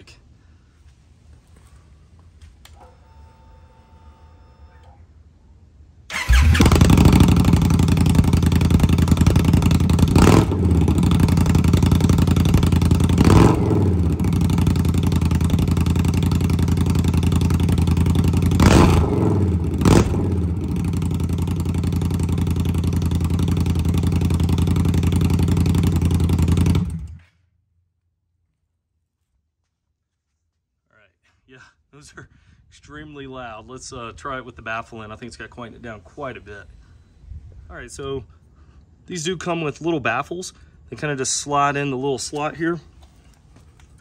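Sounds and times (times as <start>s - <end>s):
motorcycle engine idling and revving: 6.1s - 27.4s.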